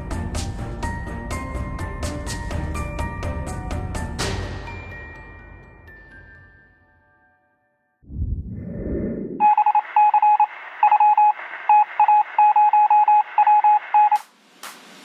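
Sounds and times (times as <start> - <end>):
low rumble: 8.0 - 9.4
electronic beeps: 9.4 - 14.2.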